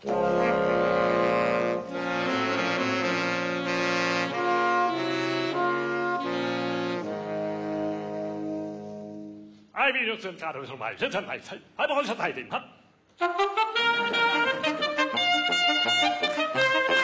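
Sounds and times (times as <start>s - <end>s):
saxophone ensemble playing chords: 0.0s - 9.7s, 13.2s - 17.0s.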